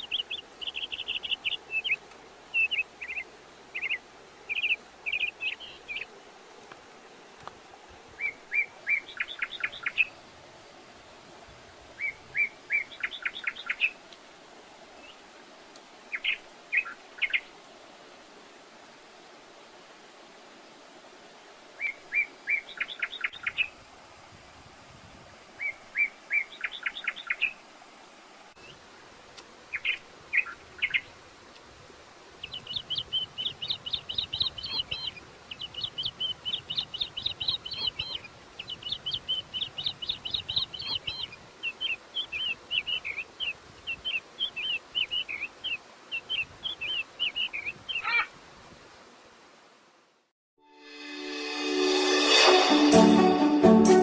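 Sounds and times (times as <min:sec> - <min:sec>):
small birds chirping: 0:00.0 - 0:06.1, 0:08.2 - 0:10.2, 0:12.0 - 0:14.0, 0:16.1 - 0:17.5, 0:21.8 - 0:23.7, 0:25.6 - 0:27.6, 0:29.7 - 0:31.1, 0:32.4 - 0:48.3
faint steady hiss: 0:00.0 - 0:54.0.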